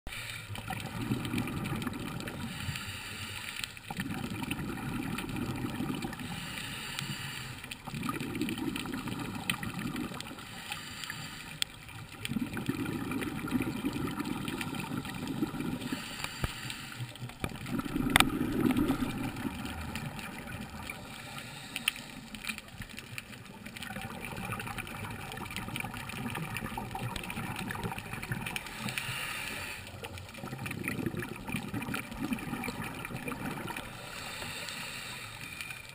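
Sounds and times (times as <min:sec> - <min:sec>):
regulator inhale hiss: 0:00.1 - 0:00.5, 0:02.4 - 0:03.8, 0:06.2 - 0:07.8, 0:10.3 - 0:11.8, 0:15.8 - 0:17.3, 0:20.9 - 0:22.6, 0:28.6 - 0:30.1, 0:33.8 - 0:35.9
exhaled bubbles underwater: 0:00.1 - 0:02.8, 0:03.8 - 0:06.5, 0:07.6 - 0:35.9.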